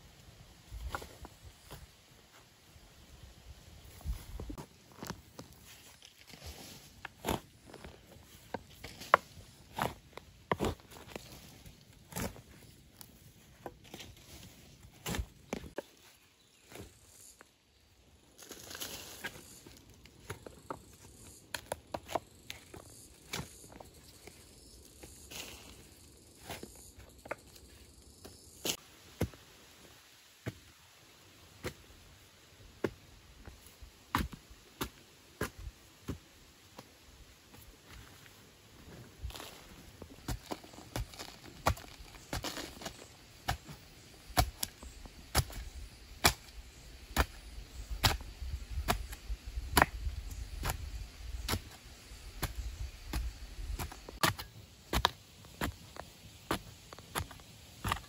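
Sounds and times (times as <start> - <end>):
hoe chopping into earth: 46.2 - 46.5, 48.0 - 48.2, 52.4 - 55.8.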